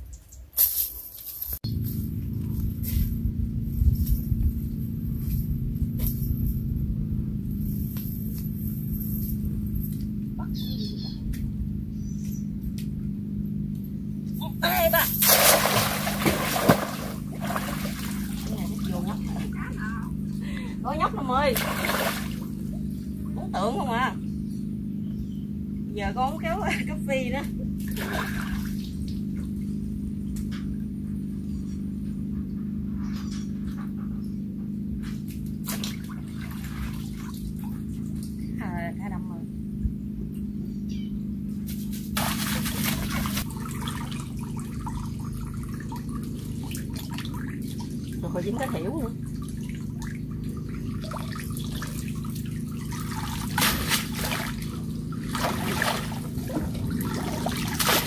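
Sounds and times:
steady low hum: 0:00.0 - 0:58.0
low rumble: 0:01.6 - 0:35.4, 0:36.0 - 0:58.0
water splashes: 0:14.8 - 0:19.8, 0:21.1 - 0:22.7, 0:27.8 - 0:29.6, 0:35.6 - 0:38.4, 0:42.2 - 0:58.0
hand net swishing through water: 0:15.2 - 0:19.4, 0:21.5 - 0:22.6, 0:41.7 - 0:45.0, 0:49.4 - 0:58.0.

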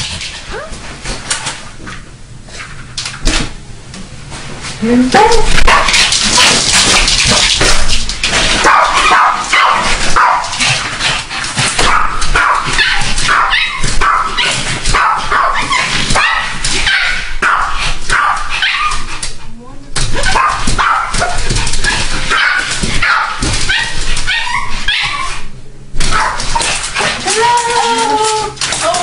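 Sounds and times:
small dogs barking and whining: 0:11.8 - 0:19.1, 0:20.2 - 0:25.4, 0:26.1 - 0:29.0.

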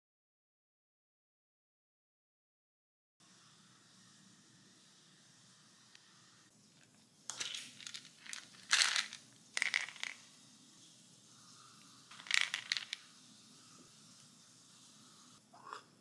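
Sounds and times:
plastic bottles handled: 0:06.8 - 0:10.2, 0:12.1 - 0:13.0
tablets rattling in bottle: 0:07.3 - 0:10.3, 0:12.1 - 0:13.1.

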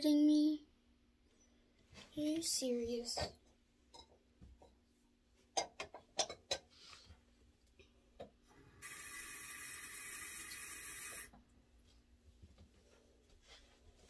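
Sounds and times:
steady hiss: 0:08.8 - 0:11.3.

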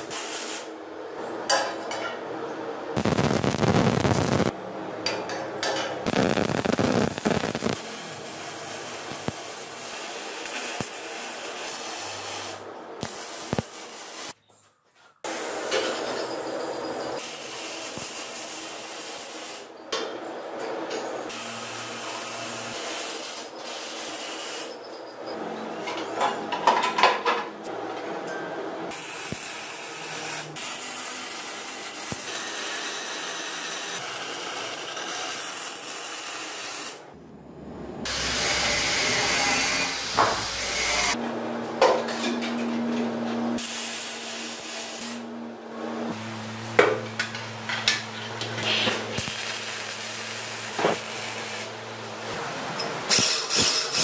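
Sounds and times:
welding crackling hiss: 0:00.0 - 0:00.7, 0:03.0 - 0:04.5, 0:06.1 - 0:14.4, 0:17.2 - 0:19.7, 0:21.3 - 0:24.8, 0:28.9 - 0:37.0, 0:43.6 - 0:45.3, 0:48.6 - 0:51.8, 0:53.1 - 0:54.0.

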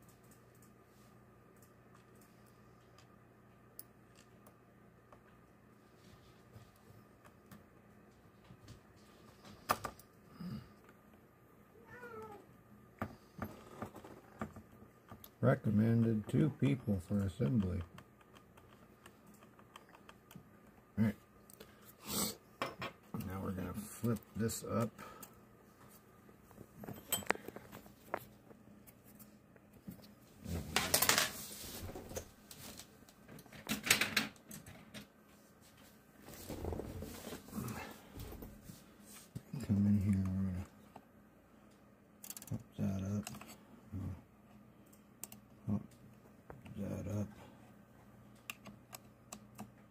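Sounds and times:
cat meowing: 0:11.8 - 0:12.4
plastic parts clicking and knocking: 0:42.2 - 0:43.5.

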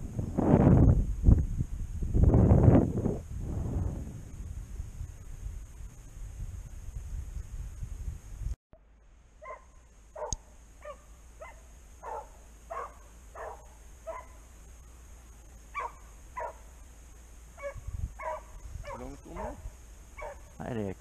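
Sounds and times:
wind rumble on microphone: 0:00.0 - 0:08.6, 0:17.5 - 0:21.0
dog baying: 0:20.2 - 0:20.5.

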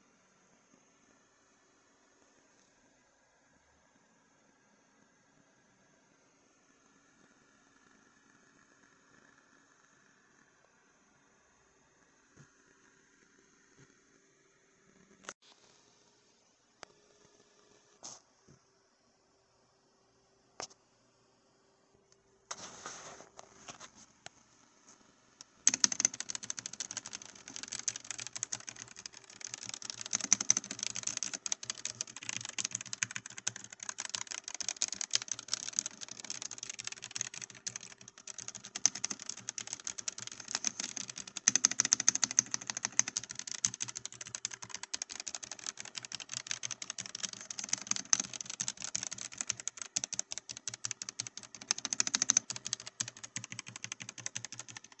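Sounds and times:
fast typing on mechanical keyboard: 0:25.6 - 0:55.0.

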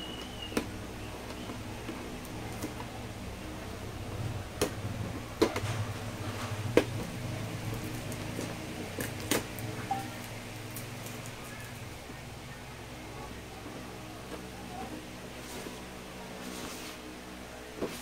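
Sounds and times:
steady low hum: 0:00.0 - 0:18.0
plastic wrapping crinkling: 0:07.7 - 0:12.1.

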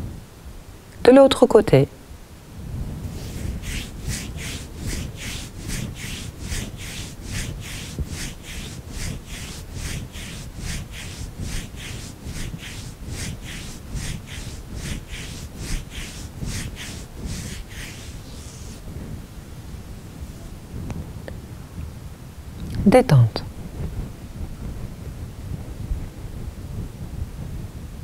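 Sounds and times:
hand rubbing neck: 0:03.0 - 0:18.9.

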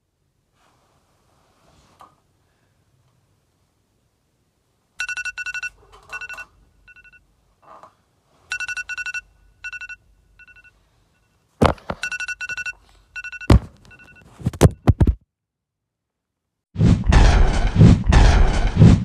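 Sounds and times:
electronic ringing tone: 0:05.0 - 0:07.2, 0:08.5 - 0:10.8, 0:11.6 - 0:14.3
loud sharp thuds: 0:13.5 - 0:13.8, 0:16.8 - 0:19.0.

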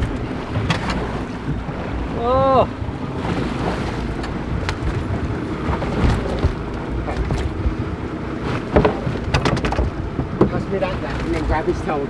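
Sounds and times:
sea noise: 0:00.0 - 0:12.0
wind: 0:00.0 - 0:12.0
knocks on boat deck: 0:08.6 - 0:10.7.

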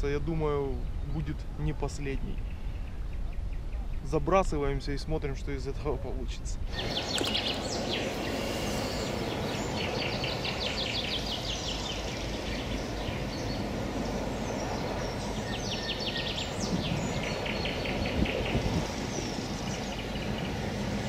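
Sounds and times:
outdoor background rush: 0:00.0 - 0:21.0
bird trilling: 0:06.7 - 0:13.7.

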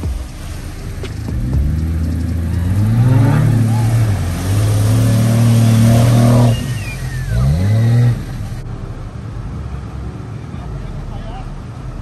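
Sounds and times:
water splashing around tyres: 0:00.0 - 0:08.6
river water rushing: 0:00.0 - 0:10.4
car engine pulling hard: 0:00.0 - 0:12.0.

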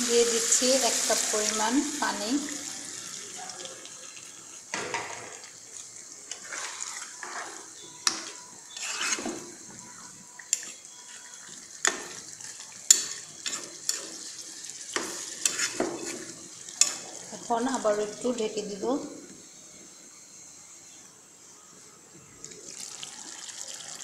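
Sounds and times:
curry sizzling: 0:00.0 - 0:24.0
metal spatula scraping pan: 0:06.3 - 0:12.2, 0:12.9 - 0:18.4.

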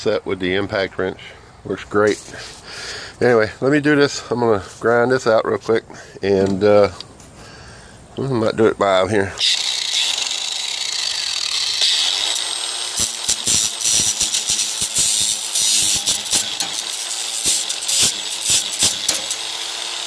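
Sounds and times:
angle grinder grinding steel: 0:09.4 - 0:20.0.

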